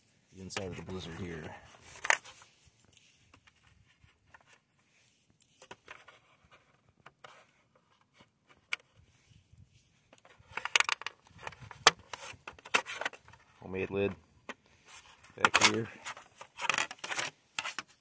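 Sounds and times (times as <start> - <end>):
small clicks and scrapes: 0.5 - 18.0
plastic clicks and rattles: 10.1 - 13.4, 15.3 - 18.0.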